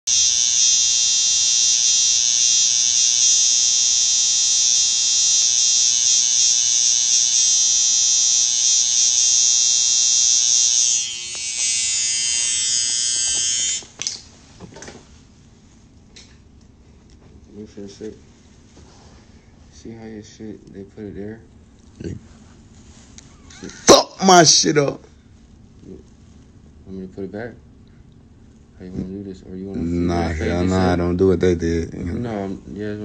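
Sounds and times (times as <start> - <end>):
electric hair clippers buzzing: 0.1 - 14.2.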